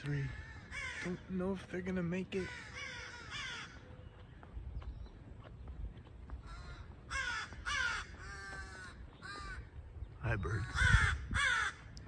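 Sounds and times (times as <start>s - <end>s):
crows cawing: 0.0s - 4.0s, 6.4s - 12.0s.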